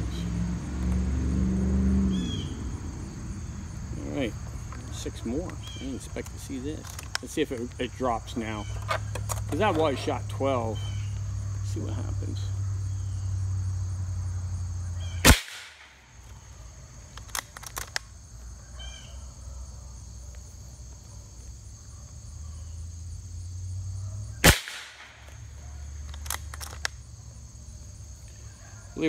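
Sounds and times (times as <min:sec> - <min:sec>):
air rifle shots: 0:15.2 - 0:16.0, 0:24.4 - 0:25.4
rifle action clicks: 0:17.1 - 0:18.1, 0:26.0 - 0:27.0.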